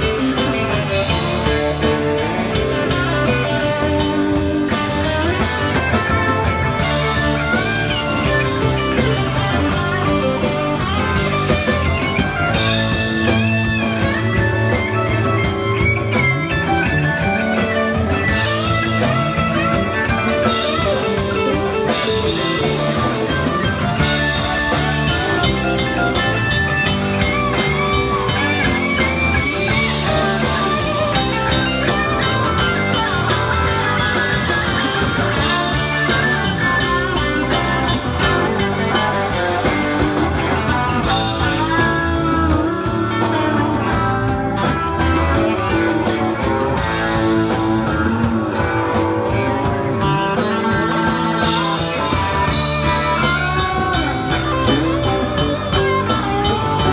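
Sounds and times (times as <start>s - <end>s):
bass guitar: 0.0s - 56.9s
drum kit: 0.0s - 56.9s
electric guitars: 0.0s - 56.9s
lead guitar bent wavering notes: 0.0s - 56.9s.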